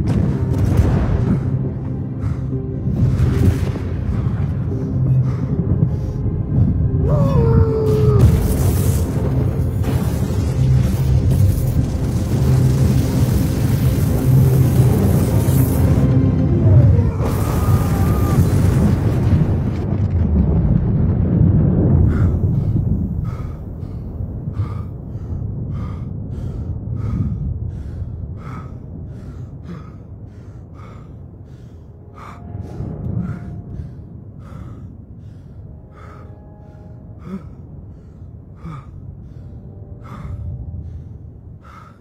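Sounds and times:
low rumble of thunder: 0.0s - 15.3s, 16.6s - 41.6s
man panting hard: 1.3s - 2.9s, 4.7s - 6.3s, 22.1s - 42.0s.

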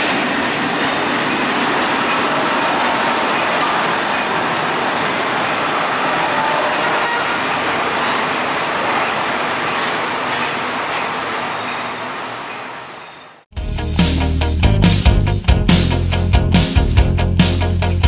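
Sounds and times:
cars crossing tracks: 0.0s - 13.5s
freight train rolling past: 0.0s - 13.5s
truck crossing tracks: 0.0s - 13.5s.

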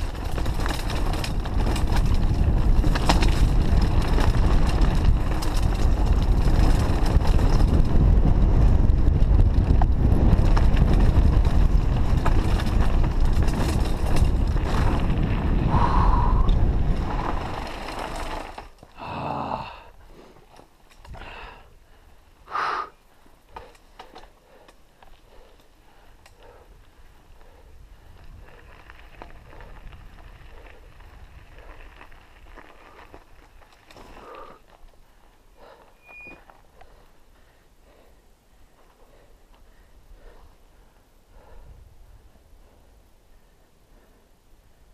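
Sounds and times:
wind on microphone: 0.0s - 18.3s
bike rattling on stony trail: 0.0s - 22.4s, 23.0s - 44.2s
heavy breathing: 15.6s - 16.6s, 18.9s - 29.9s, 34.0s - 44.5s.

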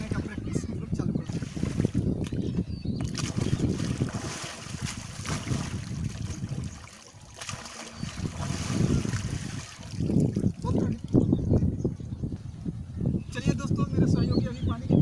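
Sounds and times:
water splashing: 0.0s - 11.3s
gusty wind on microphone: 0.0s - 15.0s.

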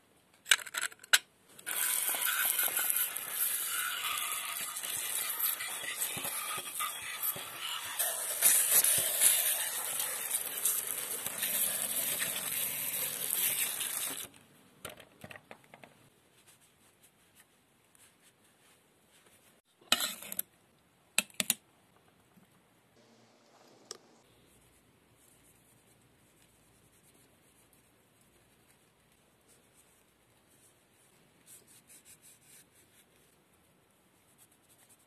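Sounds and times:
hose spray splashing on metal: 1.7s - 14.3s.

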